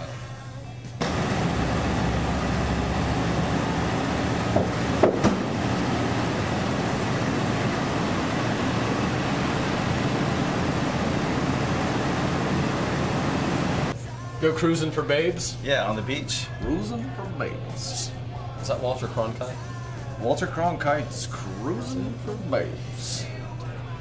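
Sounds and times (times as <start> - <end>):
car engine idling: 1.0 - 14.0.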